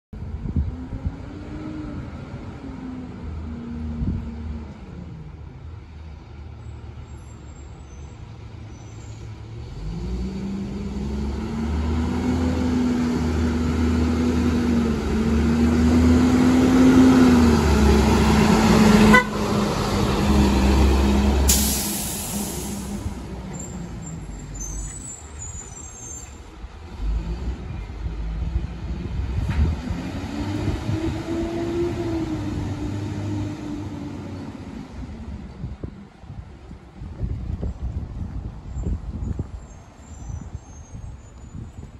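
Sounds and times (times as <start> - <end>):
bus diesel engine passing: 0.2 - 41.9
brief high hiss: 21.5 - 23.1.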